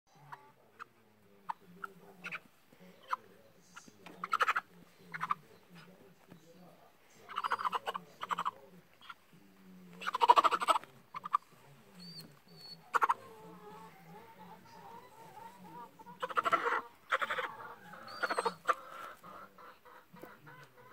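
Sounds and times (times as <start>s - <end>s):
hen squawking in distress: 16.2s - 19.2s.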